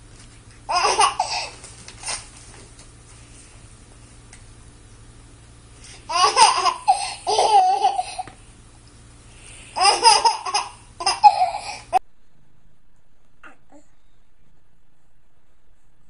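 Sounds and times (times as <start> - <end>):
baby giggling: 0.7 - 1.6, 6.1 - 8.3, 9.8 - 12.0.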